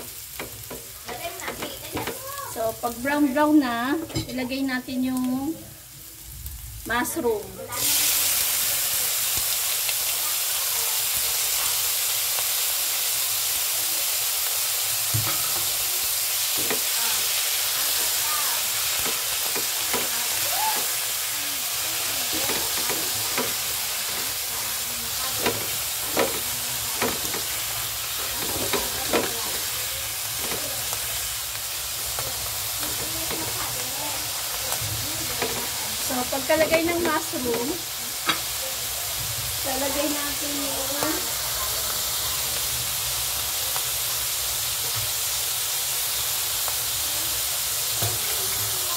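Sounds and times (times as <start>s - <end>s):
mushrooms sizzling in hot oil: 0.0s - 48.9s
spatula scraping pan: 22.1s - 31.0s.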